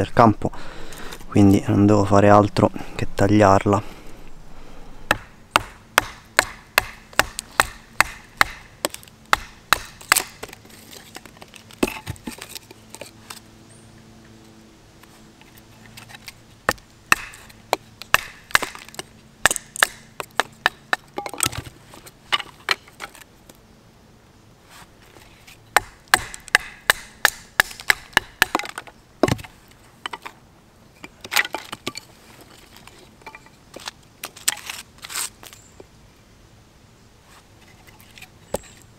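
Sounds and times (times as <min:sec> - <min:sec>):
wood splitting crack: 0:05.1 - 0:12.8, 0:16.2 - 0:21.7, 0:25.8 - 0:29.5, 0:31.2 - 0:32.0.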